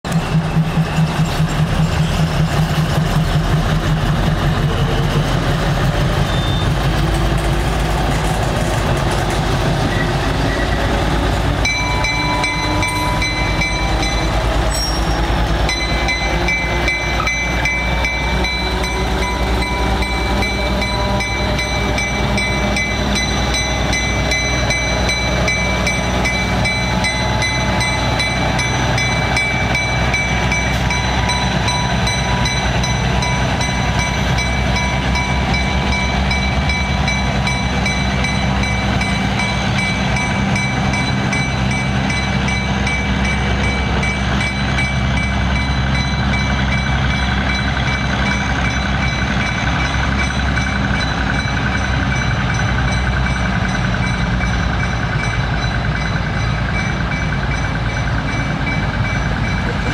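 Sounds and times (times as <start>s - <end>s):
diesel locomotive engine running: 0.0s - 59.9s
high-pitched squeal: 9.8s - 36.9s.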